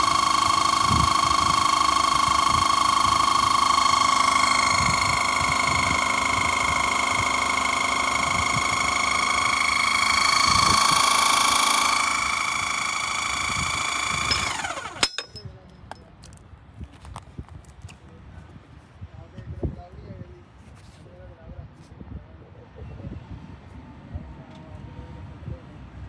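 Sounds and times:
hydraulic pump whining: 0:00.0 - 0:17.8.

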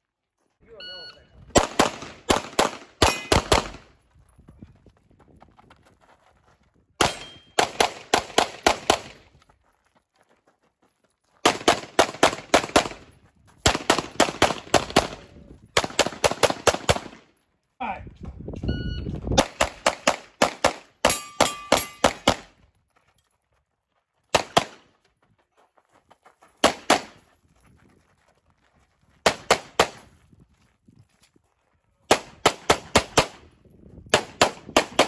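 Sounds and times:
pistol shots: 0:01.5 - 0:03.9, 0:07.0 - 0:09.2, 0:11.4 - 0:17.2, 0:19.4 - 0:22.5, 0:24.3 - 0:24.8, 0:32.1 - 0:33.4, 0:34.1 - 0:35.0
metallic ring: 0:21.1 - 0:22.1.

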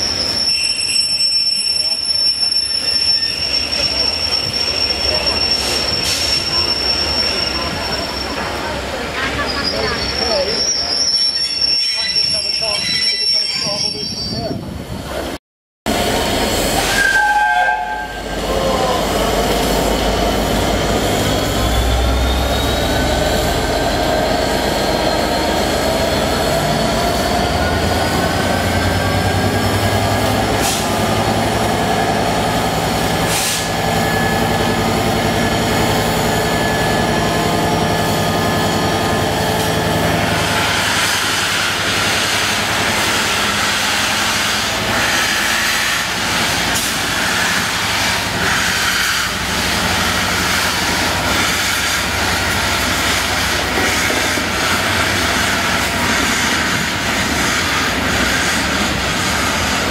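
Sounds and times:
steam hissing: 0:33.1 - 0:34.2, 0:39.6 - 0:59.9.

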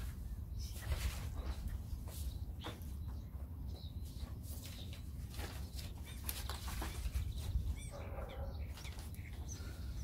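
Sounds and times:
paper rustling and crinkling: 0:00.0 - 0:01.9, 0:04.1 - 0:07.8, 0:08.7 - 0:09.4.

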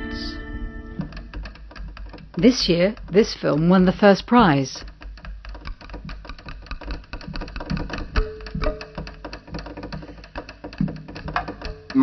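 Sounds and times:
low hum: 0:00.0 - 0:01.2
fast mechanical clicking clatter: 0:01.0 - 0:12.0.

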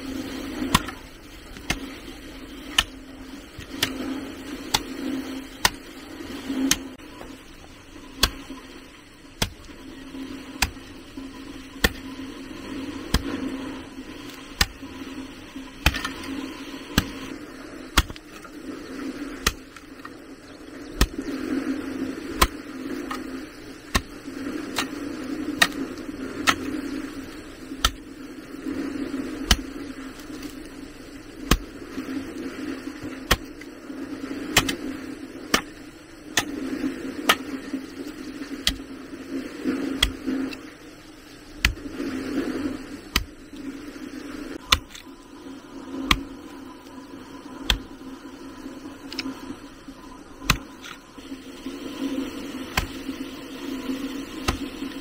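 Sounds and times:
low hum: 0:00.0 - 0:55.0
hand tool chopping: 0:11.8 - 0:12.0, 0:15.8 - 0:16.2, 0:17.0 - 0:17.3, 0:18.0 - 0:18.2, 0:34.6 - 0:34.8.

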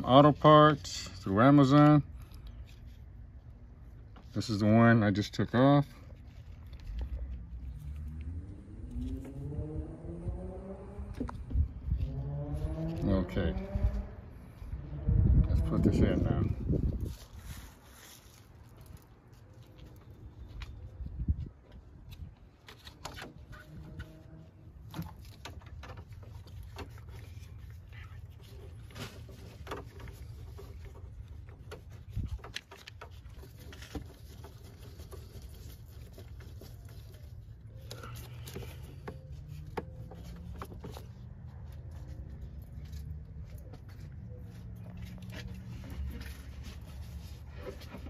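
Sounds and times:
low steady rumble: 0:05.4 - 0:22.6.

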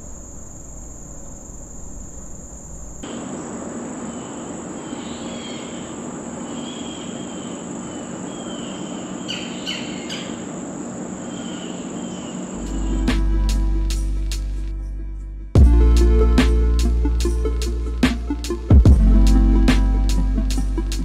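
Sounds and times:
small birds chirping: 0:00.0 - 0:13.1
insects droning: 0:00.0 - 0:14.5
music with deep bass and drums: 0:12.6 - 0:21.0.

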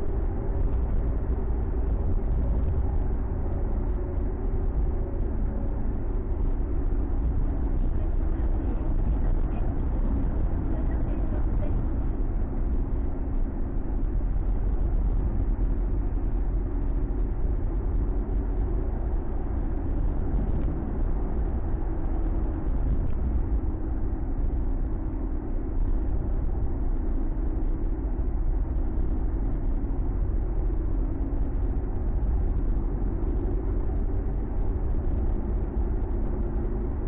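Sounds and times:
car engine drone: 0:00.0 - 0:37.0
tyre road rumble: 0:00.0 - 0:37.0.

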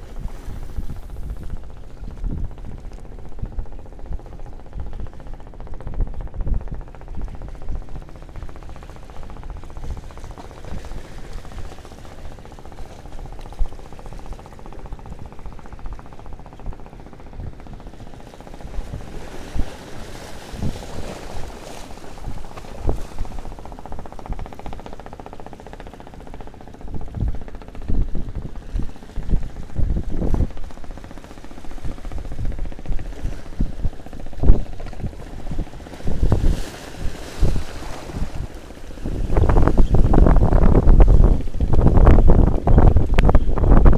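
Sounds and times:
wind buffeting microphone: 0:00.0 - 0:43.9
waves washing against rocks: 0:18.4 - 0:25.1, 0:28.7 - 0:43.2.

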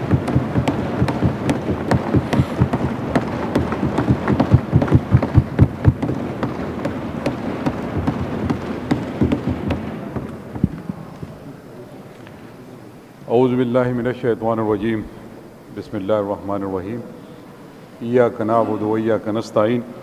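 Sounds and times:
hands thumping on wooden desks: 0:00.0 - 0:11.4.

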